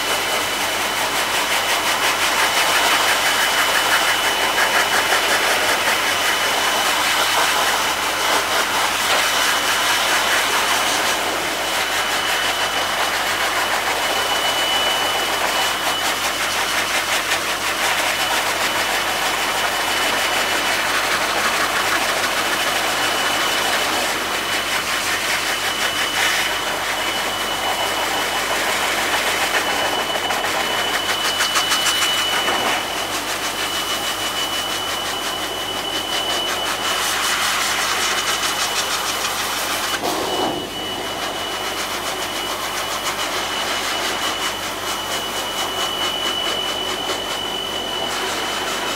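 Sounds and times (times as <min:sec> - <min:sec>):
pet dryer air rush and whine: 0:00.0 - 0:48.9.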